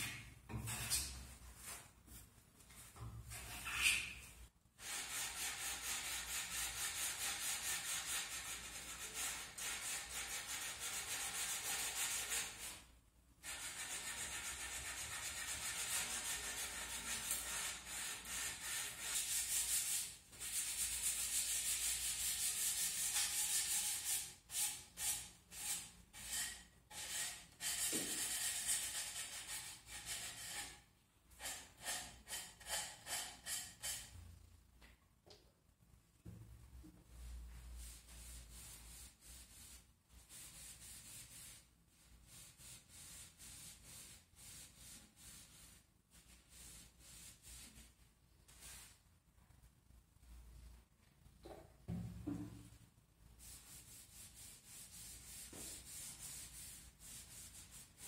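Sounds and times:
sandpaper rubbing on wood: 0:04.8 - 0:12.7, 0:13.4 - 0:30.7, 0:53.4 - 0:58.0.

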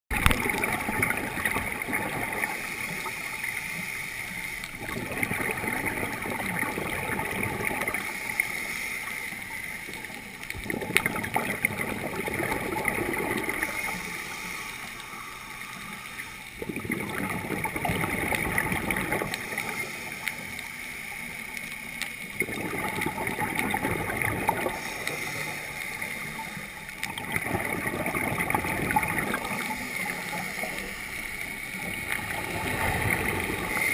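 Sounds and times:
exhaled bubbles gurgling underwater: 0:00.1 - 0:33.9
regulator inhale hiss: 0:02.3 - 0:04.7, 0:07.9 - 0:10.2, 0:13.4 - 0:16.6, 0:19.2 - 0:21.6, 0:24.6 - 0:27.0, 0:29.2 - 0:31.9.

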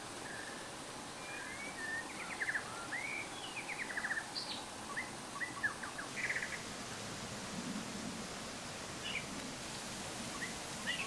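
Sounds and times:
running stream water: 0:00.0 - 0:11.0
songbirds chirping and trilling: 0:00.2 - 0:06.7, 0:10.2 - 0:11.0.

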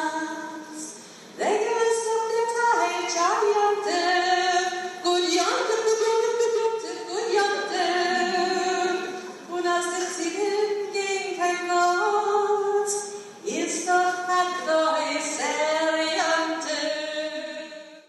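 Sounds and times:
voices singing a cappella: 0:06.8 - 0:10.6.

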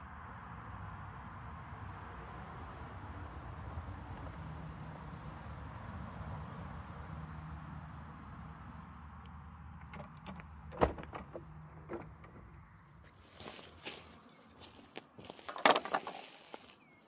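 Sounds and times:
handling clicks and rustling: 0:09.8 - 0:16.9.

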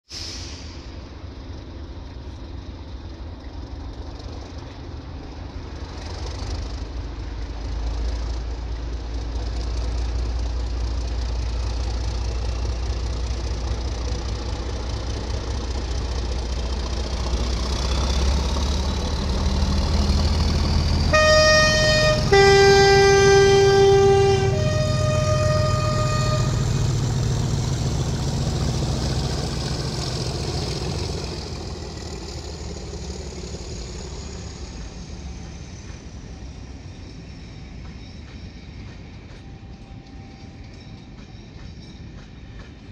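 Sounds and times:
diesel locomotive engine rumble: 0:00.0 - 0:42.9
faint rising whistle: 0:17.2 - 0:42.7
two-tone train horn: 0:21.1 - 0:27.3.

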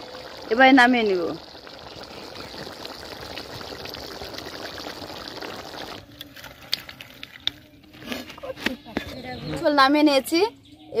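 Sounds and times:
curry bubbling in a pan: 0:00.0 - 0:07.0.

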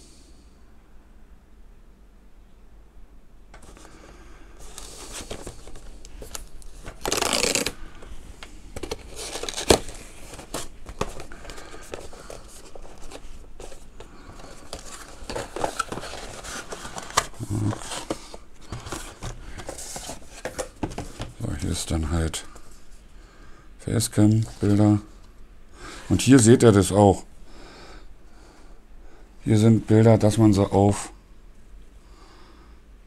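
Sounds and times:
cardboard rustling and sliding: 0:03.6 - 0:21.8.

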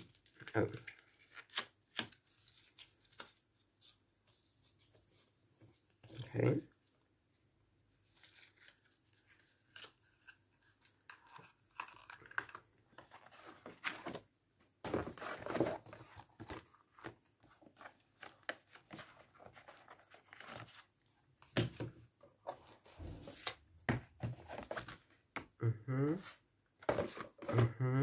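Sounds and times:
paper rustling: 0:08.0 - 0:21.7.

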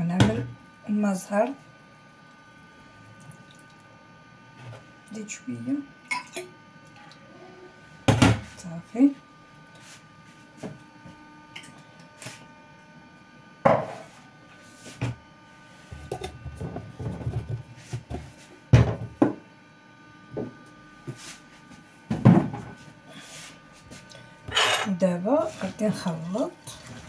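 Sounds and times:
containers knocking on counter: 0:18.7 - 0:19.4.

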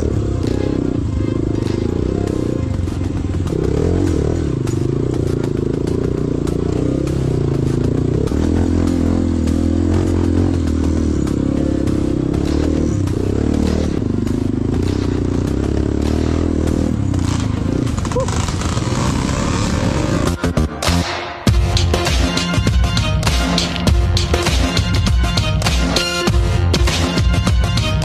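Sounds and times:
bike rattles and knocks: 0:16.9 - 0:20.1.

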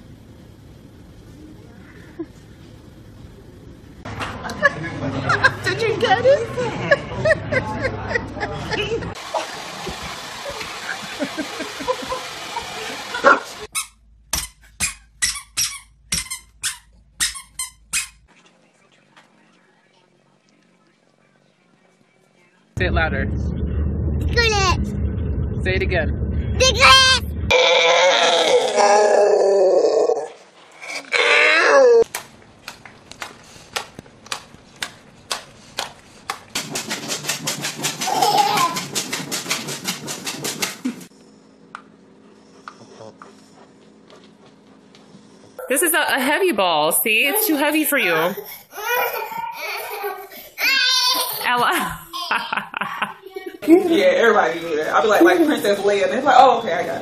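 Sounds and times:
hair dryer blowing: 0:09.2 - 0:13.7.

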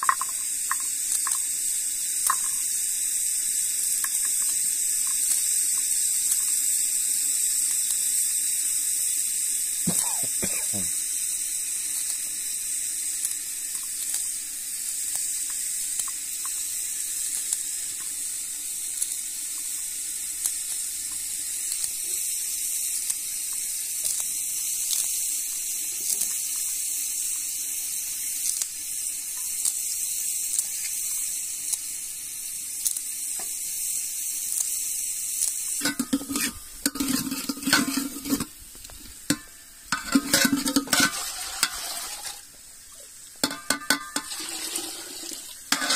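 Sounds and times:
steady hiss: 0:00.0 - 0:45.9
knife cutting onions on metal plate: 0:35.8 - 0:38.5
metal spoon scraping a pot: 0:35.8 - 0:38.6, 0:39.3 - 0:42.4, 0:43.4 - 0:45.9.

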